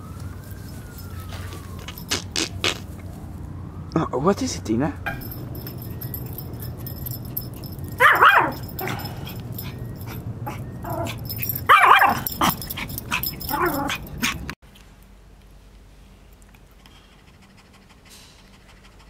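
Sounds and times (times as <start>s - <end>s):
small dog barking: 7.9s - 14.4s.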